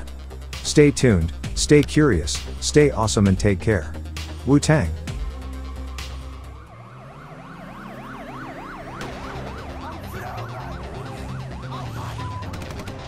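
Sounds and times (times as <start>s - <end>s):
background music with low notes: 0.0s - 13.0s
siren sweeping fast up and down: 6.2s - 13.0s.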